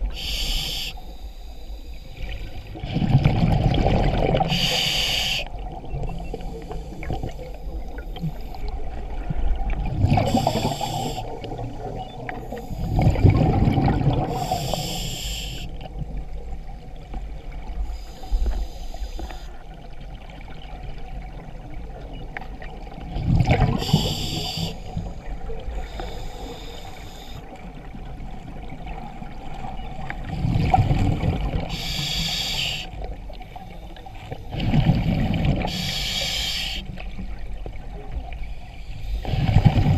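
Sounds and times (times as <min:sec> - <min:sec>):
regulator inhalation hiss: 0:00.0 - 0:02.6, 0:04.5 - 0:05.5, 0:10.3 - 0:11.4, 0:14.3 - 0:15.8, 0:17.9 - 0:19.5, 0:23.8 - 0:27.4, 0:31.7 - 0:34.0, 0:35.7 - 0:36.9
exhaled bubbles gushing: 0:02.7 - 0:04.7, 0:05.5 - 0:14.6, 0:22.8 - 0:24.2, 0:30.2 - 0:32.0, 0:34.5 - 0:35.8.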